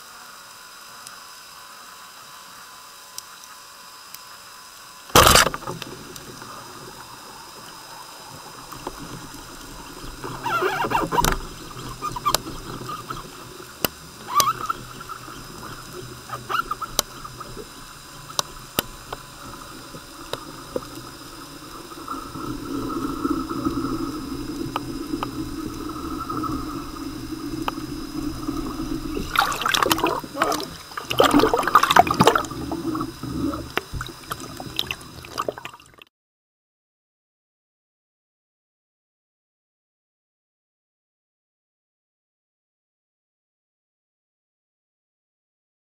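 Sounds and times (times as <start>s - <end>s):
underwater water noise: 0.1s - 36.1s
speargun shot underwater: 5.1s - 6.3s, 10.0s - 35.7s
rushes of water: 5.2s - 36.0s
underwater clicks and knocks: 8.6s - 35.7s.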